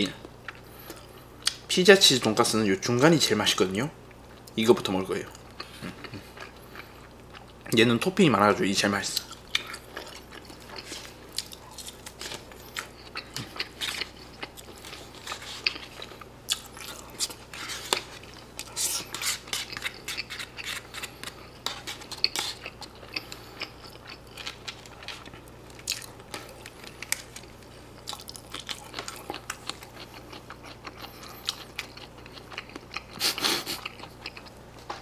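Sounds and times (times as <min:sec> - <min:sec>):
wet chewing and lip-smacking: 0:09.2 - 0:34.6.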